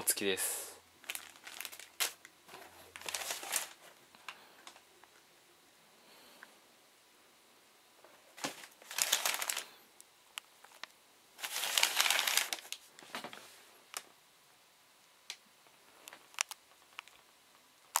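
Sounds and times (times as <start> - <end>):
tissue paper crinkling: 1.0 - 4.0, 8.4 - 9.7, 11.4 - 13.4.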